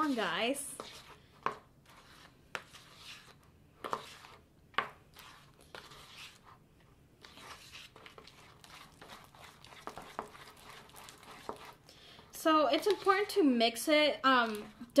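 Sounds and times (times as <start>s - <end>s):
slime squelching: 7.2s - 13.5s.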